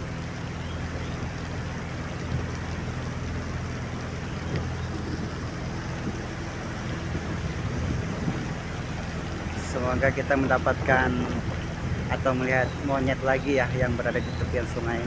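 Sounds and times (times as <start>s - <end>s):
boat engine humming: 0.0s - 15.0s
water washing: 0.0s - 15.0s
wind noise: 4.3s - 15.0s.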